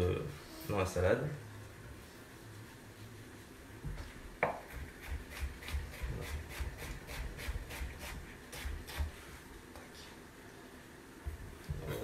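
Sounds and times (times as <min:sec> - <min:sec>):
knife chopping on wooden board: 0:04.4 - 0:07.9.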